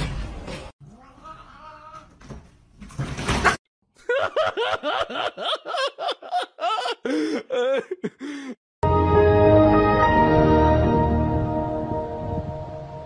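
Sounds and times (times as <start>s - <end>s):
person laughing: 4.0s - 8.6s.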